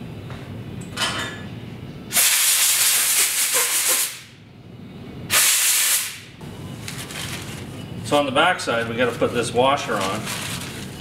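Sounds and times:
air blow gun blasts: 0:02.1 - 0:04.3, 0:05.3 - 0:06.3.

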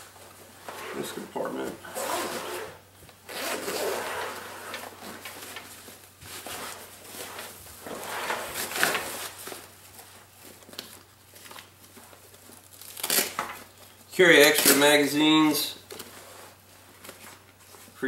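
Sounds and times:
nylon fabric rustling: 0:00.0 - 0:15.0
zipper unzipping: 0:01.9 - 0:04.9.

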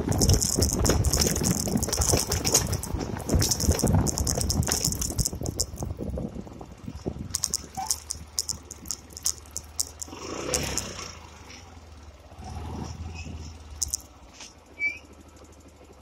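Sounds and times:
sharp rattling clicks: 0:00.0 - 0:06.2, 0:07.3 - 0:11.1, 0:13.8 - 0:14.1
motorcycle engine running: 0:00.0 - 0:13.0.

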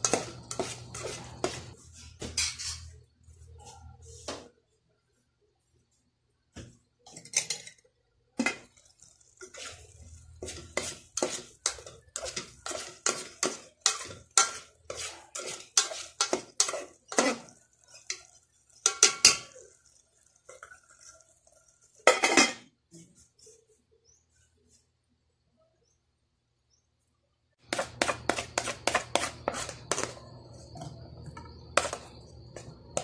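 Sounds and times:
metal spoon scraping metal pot: 0:00.0 - 0:01.8, 0:02.4 - 0:03.0, 0:08.4 - 0:19.6, 0:22.0 - 0:22.6, 0:27.7 - 0:33.0.

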